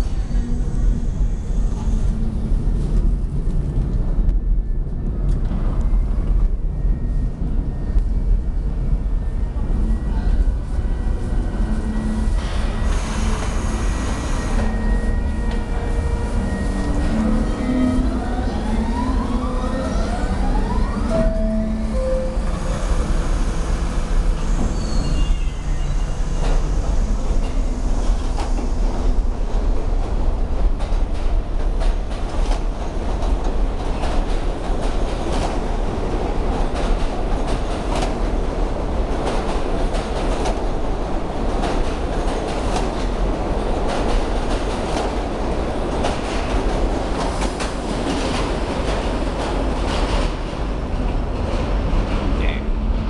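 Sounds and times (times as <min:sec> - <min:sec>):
subway train rumbling: 0:00.0 - 0:53.0.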